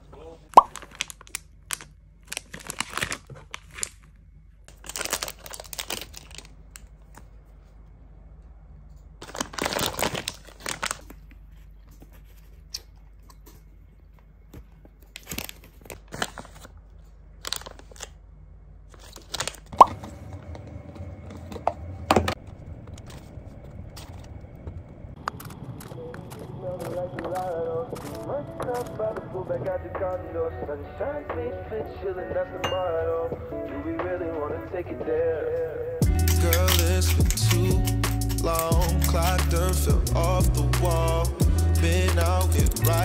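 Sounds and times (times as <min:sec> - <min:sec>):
faint steady hum: 0:00.0 - 0:36.1
plastic wrapper crinkling: 0:00.5 - 0:07.4, 0:09.2 - 0:13.6, 0:14.7 - 0:18.2, 0:18.9 - 0:19.8, 0:36.2 - 0:40.0
foil pouch tearing open: 0:00.6 - 0:04.1, 0:04.7 - 0:06.5, 0:09.2 - 0:11.1, 0:15.1 - 0:16.8, 0:17.4 - 0:18.2, 0:18.9 - 0:19.7, 0:36.2 - 0:39.9
spoon scraping plastic container: 0:36.2 - 0:39.4.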